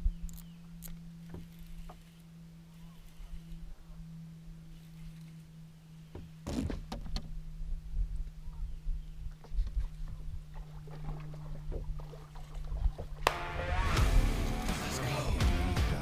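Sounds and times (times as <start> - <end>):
steady low hum: 0.0 - 16.0
rod and reel clicks: 0.2 - 3.7, 4.7 - 5.4
music: 13.3 - 16.0.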